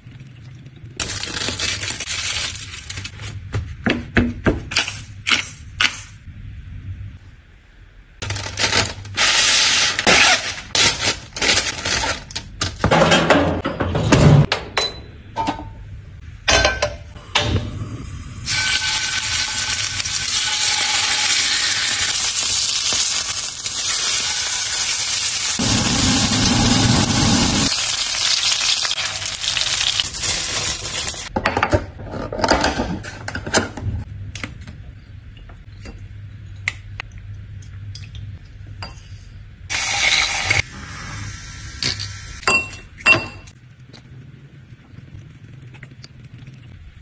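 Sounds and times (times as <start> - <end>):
steak sizzling in a pan: 18.5 - 31.2.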